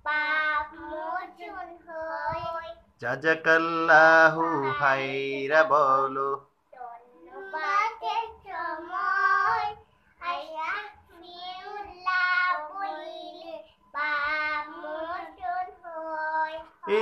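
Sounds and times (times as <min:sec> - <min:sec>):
children singing: 0:07.3 - 0:09.8, 0:11.3 - 0:17.0.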